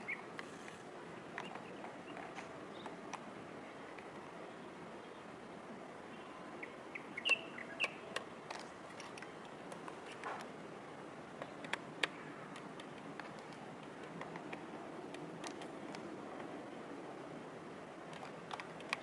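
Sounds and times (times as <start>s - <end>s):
bird chirps: 0.0s - 0.3s, 6.1s - 8.2s
steady outdoor hiss: 0.0s - 19.0s
sharp clicks: 11.4s - 16.5s, 18.1s - 19.0s.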